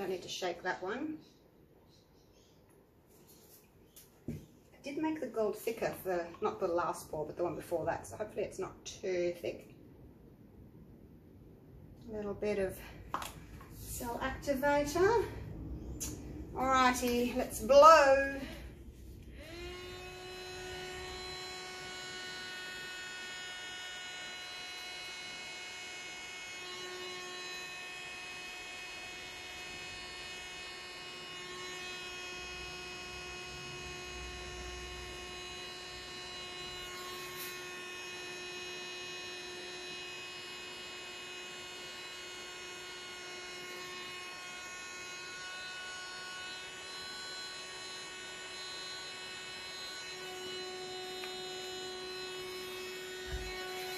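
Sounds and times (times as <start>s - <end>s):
electric air blower whining: 12.4s - 53.9s.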